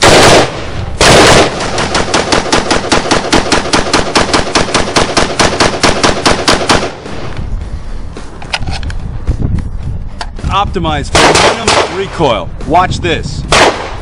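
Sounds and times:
rifle shots: 0.0s - 7.3s, 11.1s - 12.2s, 13.5s - 14.0s.

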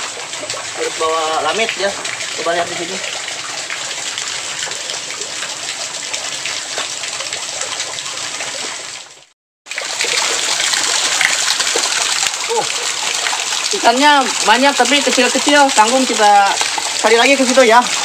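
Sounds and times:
shallow water trickling: 0.0s - 18.0s
small splashes and drips: 0.0s - 18.0s.

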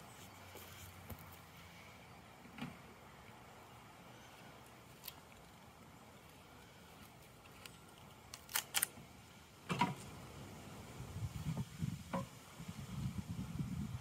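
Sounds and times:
handling rustle: 4.8s - 8.9s.

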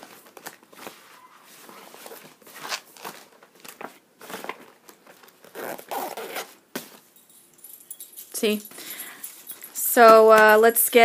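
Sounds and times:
notebook rustling into fabric bag: 0.0s - 7.0s.

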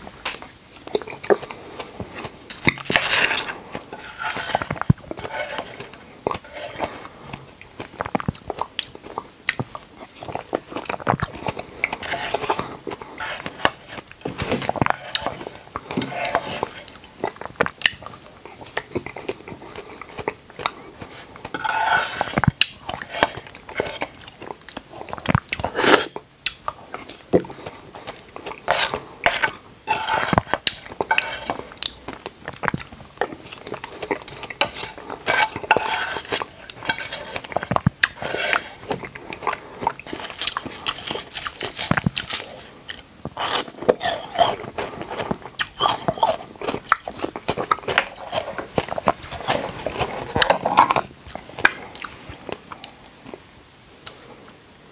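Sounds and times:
person biting and chewing: 0.4s - 53.1s
sharp clicks and small crunches: 26.5s - 53.0s.

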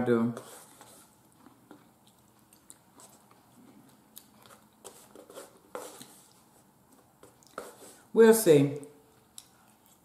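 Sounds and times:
chewing: 1.2s - 4.8s, 9.1s - 10.0s.

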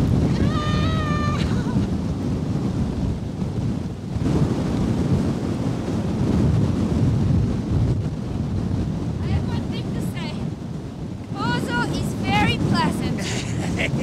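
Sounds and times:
strong wind buffeting microphone: 0.0s - 14.0s.

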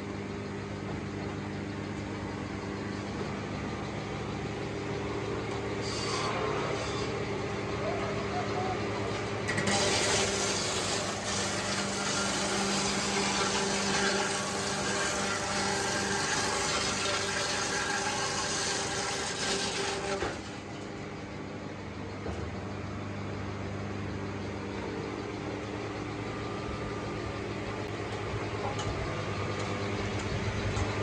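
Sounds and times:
low engine-like drone: 0.0s - 9.8s, 20.6s - 31.0s
sawmill machinery humming: 0.0s - 31.0s.

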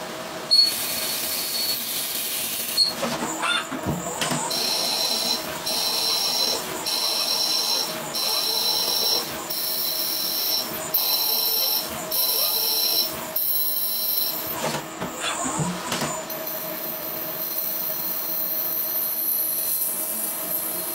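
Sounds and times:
machine running steadily: 0.0s - 20.6s
lathe cutting whine: 0.4s - 14.7s.

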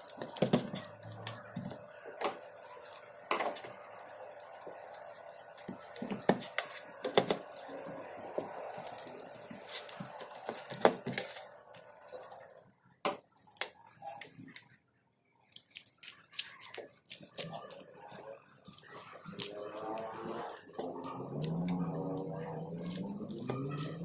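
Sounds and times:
scissors snipping: 15.6s - 24.0s.

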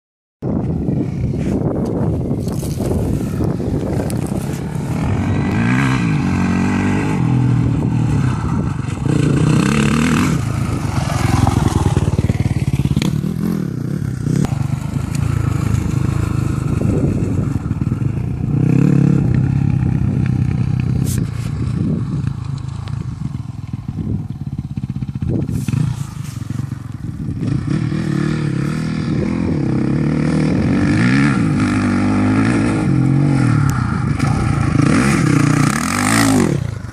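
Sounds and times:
dirt bike engine revving: 2.6s - 36.9s.

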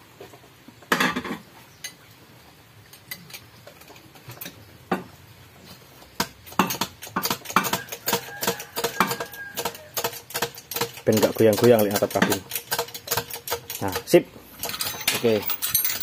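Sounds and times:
metallic clicks of tools: 6.2s - 16.0s.

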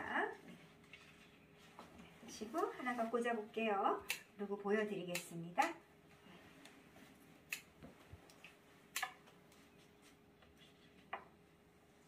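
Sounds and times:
scissors snipping flower stems: 4.0s - 4.3s, 5.1s - 5.8s.

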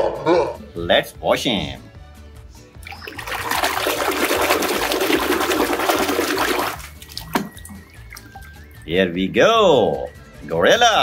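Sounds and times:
water sloshing in plastic tub: 2.9s - 8.8s.

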